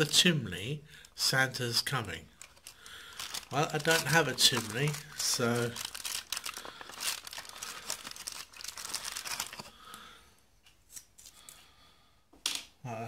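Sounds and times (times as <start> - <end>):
cardboard and foil crinkling: 1.8 - 10.0.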